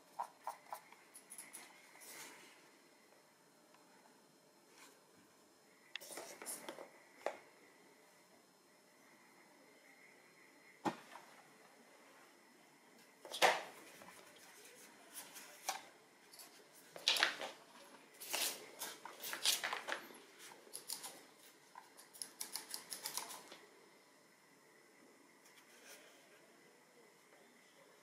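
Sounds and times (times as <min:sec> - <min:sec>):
mouse and cable handling rustles: 0:13.3 - 0:21.2.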